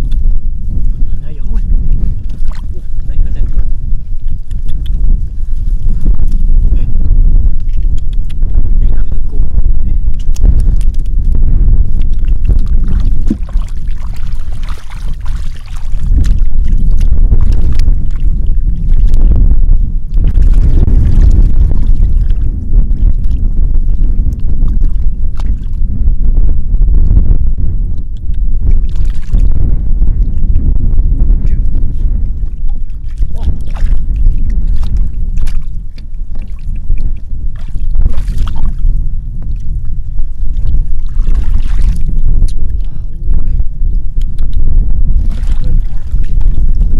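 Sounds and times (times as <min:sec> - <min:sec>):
wind rumble on microphone: 0:00.0 - 0:46.9
hands sloshing in muddy water: 0:12.0 - 0:19.2, 0:32.7 - 0:38.8, 0:40.5 - 0:42.6, 0:45.2 - 0:46.6.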